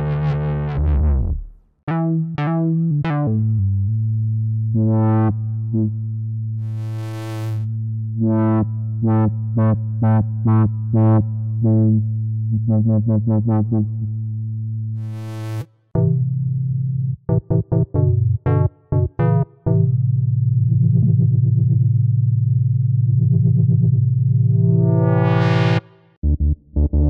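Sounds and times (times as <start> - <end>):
held low synth bass note: 0.0 - 27.0
plucky synth stabs: 24.6 - 27.0.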